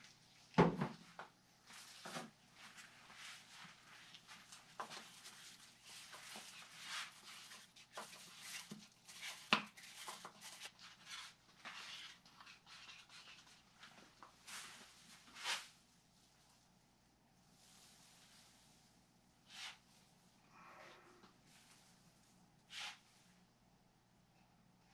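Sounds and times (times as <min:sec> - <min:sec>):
rustling scraping strokes: 0:19.5 - 0:20.1, 0:21.5 - 0:23.3.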